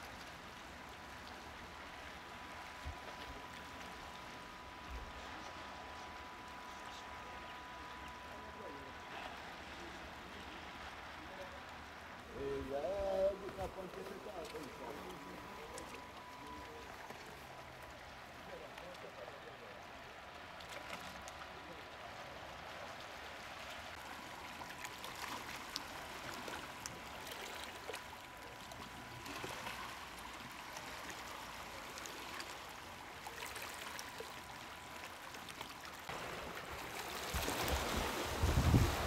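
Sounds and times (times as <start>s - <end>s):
wind buffeting microphone: 37.3s - 39.0s.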